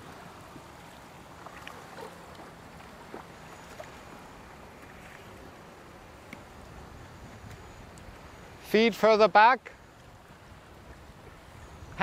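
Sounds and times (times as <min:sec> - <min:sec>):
waves lapping against board: 0:00.0 - 0:12.0
wind rumble on microphone: 0:04.8 - 0:08.6, 0:10.0 - 0:12.0.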